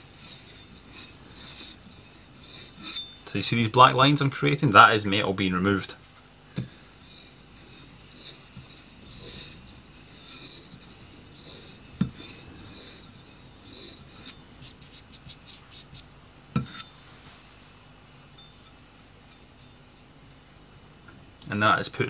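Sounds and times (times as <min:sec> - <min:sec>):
knife scraping on leather strop: 0:00.1 - 0:03.2, 0:06.6 - 0:16.9.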